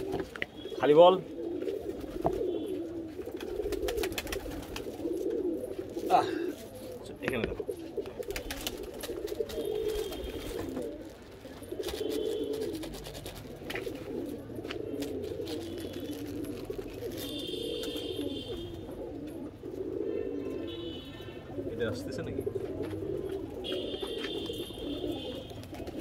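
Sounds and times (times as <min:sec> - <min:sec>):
pigeons cooing: 0:00.0 - 0:26.0
plastic bag crinkling: 0:15.0 - 0:17.5.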